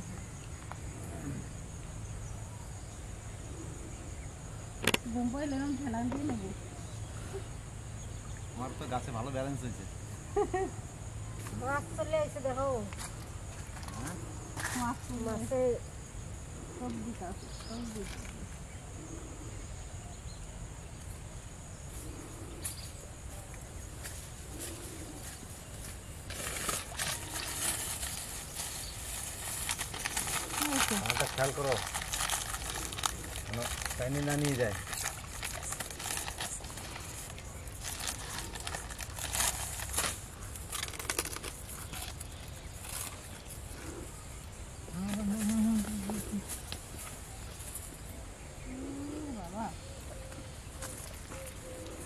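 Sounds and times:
insects droning: 0.0s - 52.0s
plastic bag crinkling: 26.3s - 43.4s.

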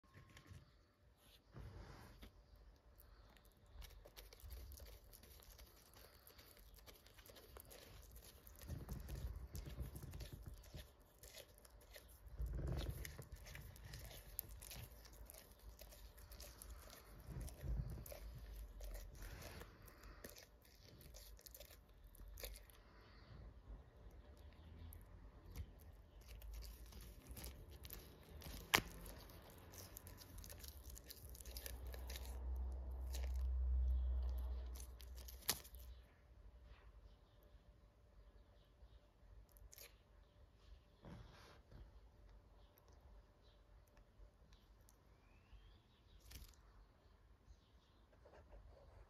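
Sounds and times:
iguana crunching leaves: 3.8s - 22.6s, 26.1s - 35.9s.

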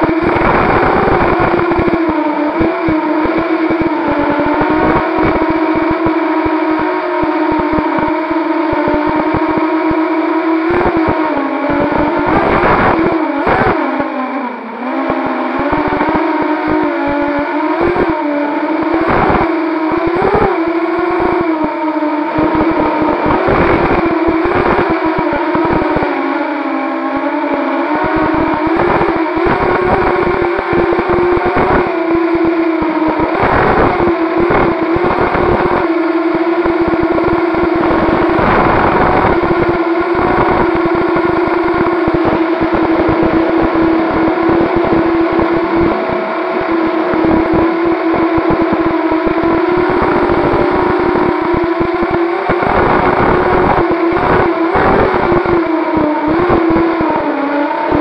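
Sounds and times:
low buffeting: 0.0s - 56.1s
quadcopter propellers whining: 0.0s - 58.0s.

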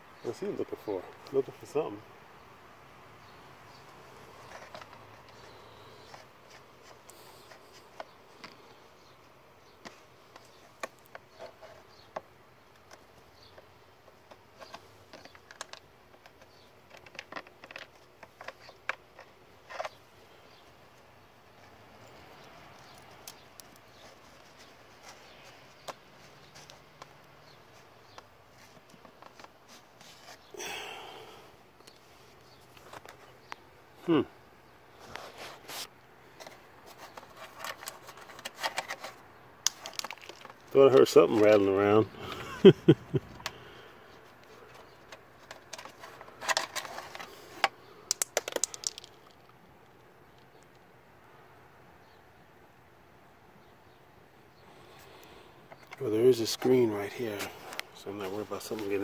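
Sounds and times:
faint clicks and scrapes: 3.8s - 9.1s, 9.7s - 20.8s, 21.6s - 30.5s, 34.9s - 40.8s, 43.4s - 49.6s, 54.8s - 59.0s
rustling scrape: 34.9s - 40.6s, 44.5s - 47.7s.

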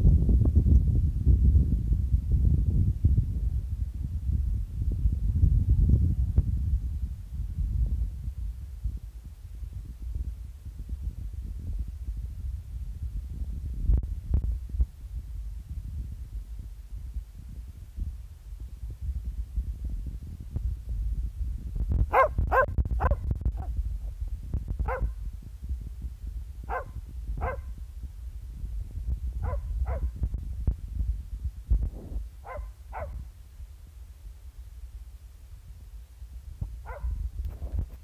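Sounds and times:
steady low rumble: 0.0s - 38.0s
dog barking: 22.1s - 23.2s, 24.9s - 25.1s, 26.7s - 27.7s, 29.4s - 30.1s, 32.4s - 33.2s, 36.8s - 37.2s.

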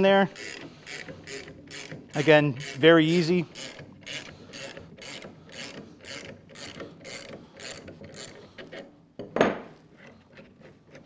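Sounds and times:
ratcheting wrench clicking: 0.3s - 8.9s
metal wrench clunk on workbench: 9.2s - 9.7s.

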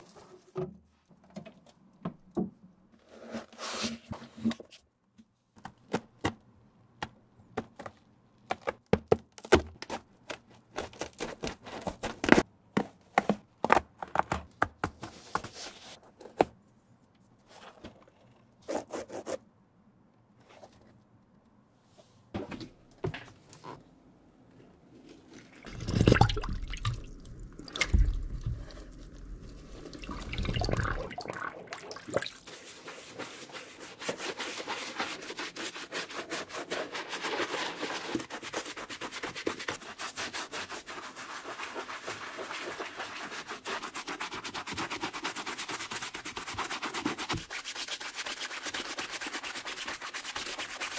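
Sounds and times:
water splashing into plastic tub: 25.6s - 28.7s
bristle brush scrubbing: 32.2s - 50.9s.

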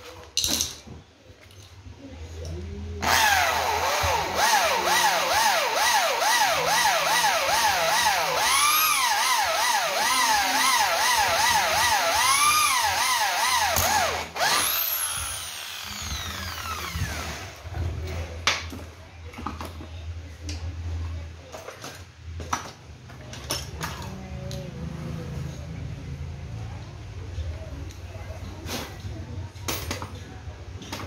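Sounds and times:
electric drill motor whining: 3.0s - 17.6s.

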